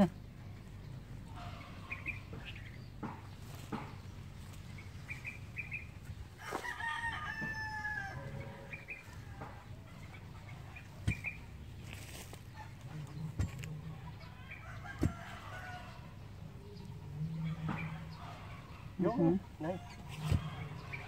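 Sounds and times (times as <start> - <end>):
bird chirps: 1.6 - 3.0, 4.0 - 6.1, 10.1 - 11.5
rooster crowing: 6.4 - 9.4.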